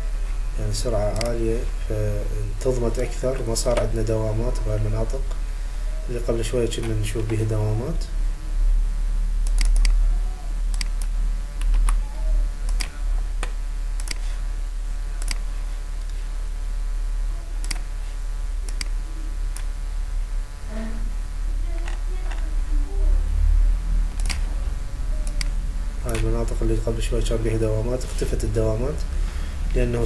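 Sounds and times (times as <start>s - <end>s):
steady low hum: 0.0s - 30.0s
computer mouse clicking: 9.4s - 10.0s, 10.7s - 12.0s, 12.7s - 14.2s, 15.2s - 15.4s, 18.7s - 18.9s, 24.2s - 24.4s.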